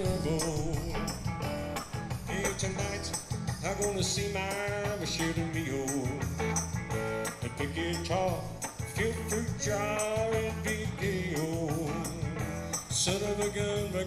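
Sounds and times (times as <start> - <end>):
bass line: 0.0 - 14.0
electric guitar lead lines: 0.0 - 14.0
jingling percussion beat: 0.0 - 14.0.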